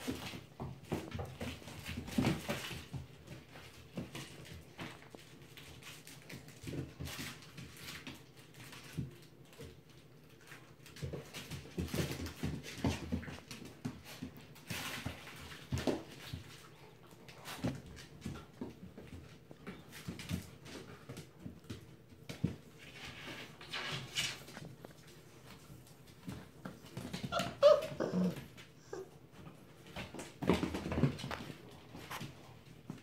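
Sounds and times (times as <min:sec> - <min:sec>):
puppies vocalizing: 0:27.0 - 0:29.2.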